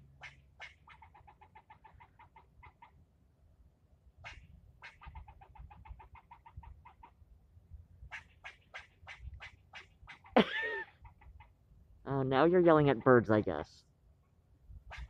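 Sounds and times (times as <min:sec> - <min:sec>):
squirrel barks: 0:00.1 - 0:03.0, 0:04.2 - 0:07.2, 0:08.1 - 0:11.6
squirrel chucking in alarm: 0:04.2 - 0:07.1, 0:08.1 - 0:11.5.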